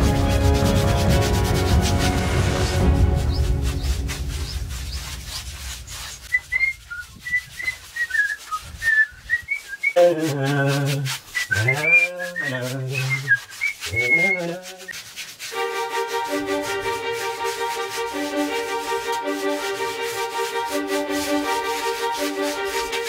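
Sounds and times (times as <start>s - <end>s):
paintbrush scraping on concrete: 0.0s - 23.0s
whistled tune: 6.0s - 10.4s, 11.3s - 14.5s.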